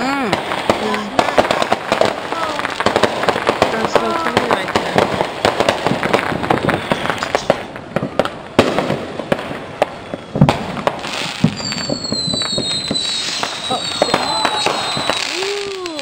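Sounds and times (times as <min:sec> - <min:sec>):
fireworks bangs and pops: 0:00.0 - 0:16.0
high falling whistle: 0:11.5 - 0:16.0.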